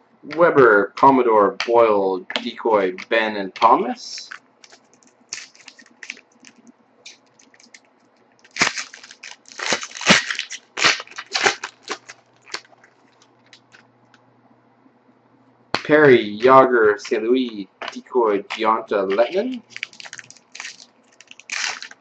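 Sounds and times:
foil wrapper crinkling and tearing: 0:04.2 - 0:07.8, 0:08.4 - 0:13.8, 0:17.8 - 0:22.0
trading cards clicking: 0:15.8 - 0:22.0.

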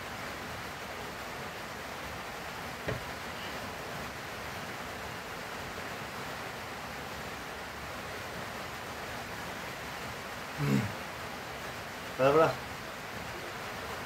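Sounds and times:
steady recording hiss: 0:00.0 - 0:14.0
soft knock: 0:02.8 - 0:03.1.

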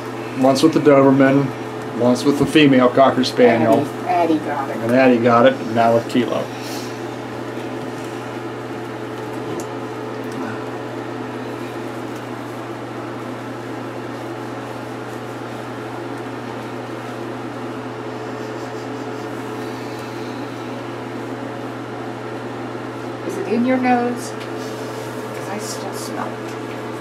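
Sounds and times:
appliance humming: 0:00.0 - 0:27.0
hands rubbing lather into fur: 0:11.7 - 0:21.4, 0:24.4 - 0:25.3.

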